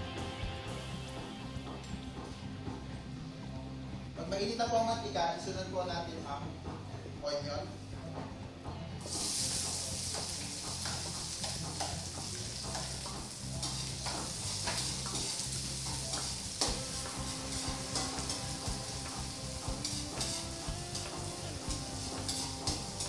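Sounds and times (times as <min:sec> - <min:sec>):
onion sizzling in hot oil: 0:09.0 - 0:23.0
spatula scraping wok: 0:09.0 - 0:23.0.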